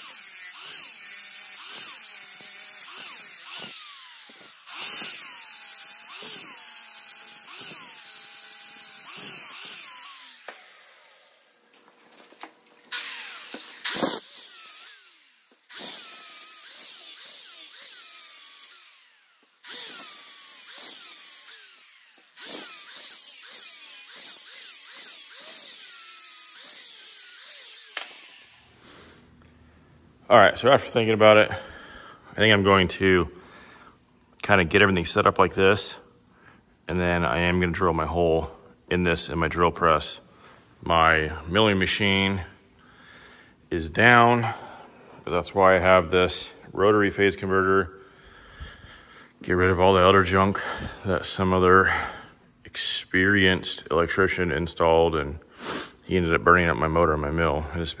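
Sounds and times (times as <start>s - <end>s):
angle grinder grinding metal: 0.0s - 29.2s.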